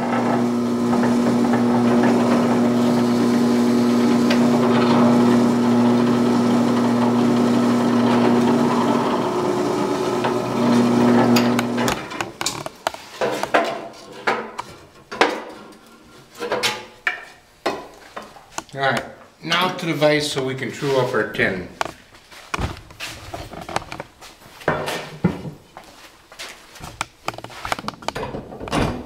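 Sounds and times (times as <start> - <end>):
electric drill drilling wood: 0.0 - 12.7
wood and tools knocking: 0.0 - 15.8, 16.4 - 18.7, 21.8 - 25.6, 26.8 - 29.0.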